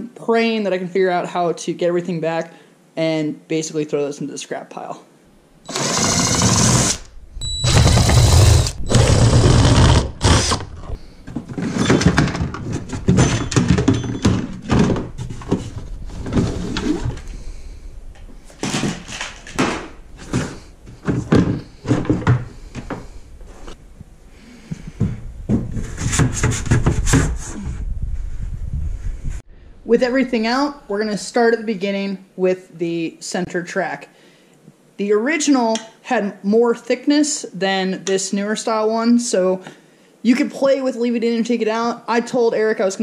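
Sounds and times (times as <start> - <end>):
cordless drill running: 5.7 - 10.9
plastic parts clicking and rattling: 18.2 - 22.3.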